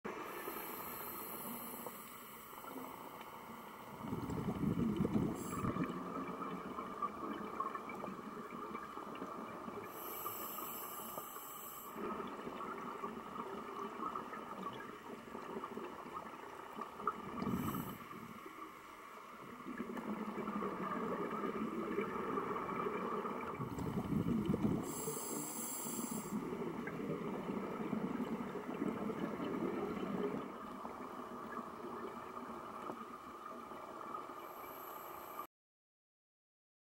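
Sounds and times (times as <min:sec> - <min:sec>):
steady background hiss: 0:00.1 - 0:35.5
regulator hiss on inhalation: 0:00.2 - 0:05.8, 0:09.9 - 0:12.0, 0:17.4 - 0:18.2, 0:23.7 - 0:26.5, 0:34.4 - 0:35.5
rumble of exhaled bubbles: 0:00.2 - 0:09.9, 0:12.0 - 0:18.5, 0:19.4 - 0:34.4.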